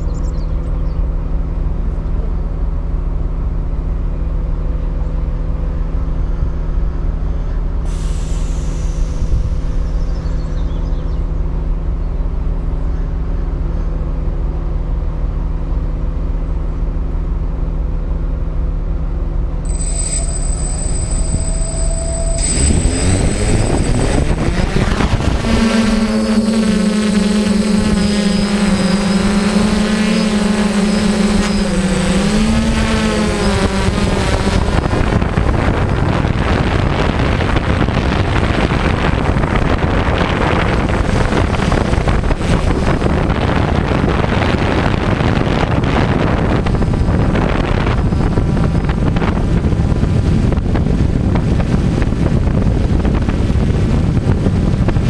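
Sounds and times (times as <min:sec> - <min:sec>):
wind noise: 0:06.0 - 0:11.0, 0:19.6 - 0:55.0
drone propellers humming: 0:17.8 - 0:55.0.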